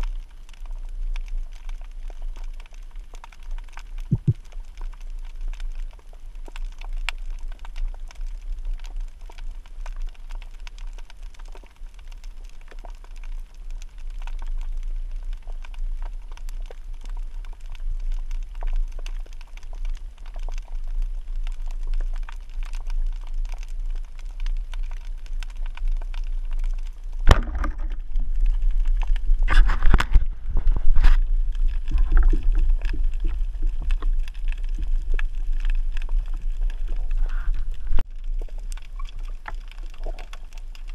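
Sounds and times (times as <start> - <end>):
faint crackling clicks: 0.0 - 40.9
underwater rumble: 0.0 - 40.9
speargun firing crack: 27.3 - 27.9.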